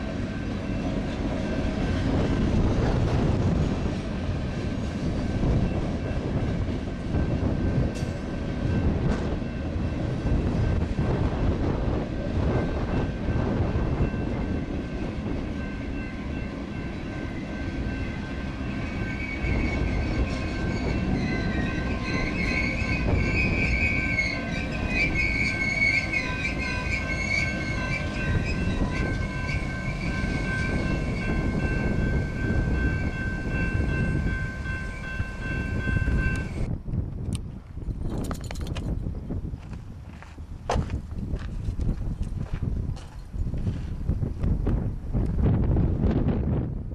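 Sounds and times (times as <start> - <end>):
train wheels rumbling on rails: 0.0 - 46.9
steady high tone: 12.0 - 36.7
wheel squeal: 18.8 - 31.3.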